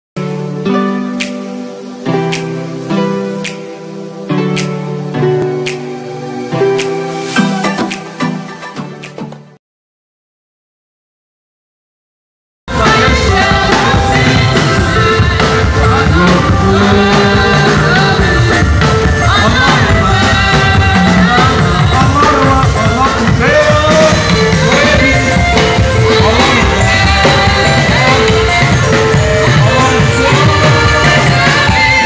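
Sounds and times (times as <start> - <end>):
drum kit: 1.2 - 9.6, 12.7 - 32.0
hand percussion: 6.8 - 9.5
voices singing gospel music: 12.7 - 32.0.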